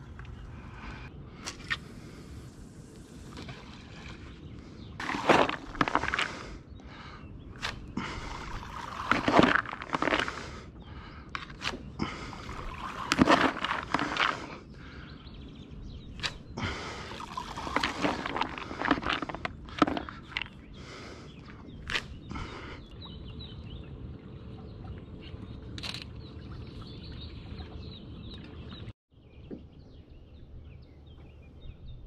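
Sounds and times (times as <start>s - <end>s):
scoop scraping through corn kernels: 5.0s - 6.3s, 8.5s - 10.4s, 12.5s - 14.5s, 17.2s - 20.5s.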